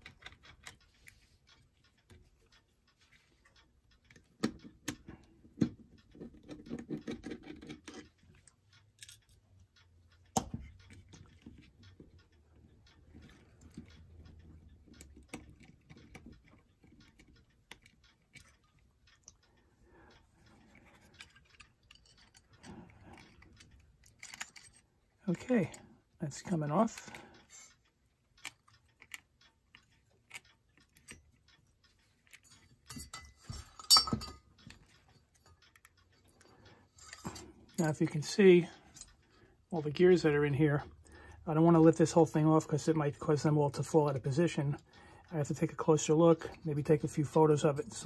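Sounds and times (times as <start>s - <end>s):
sharp clicks and taps: 0.0s - 24.8s
metal clock parts scraping: 5.8s - 40.8s.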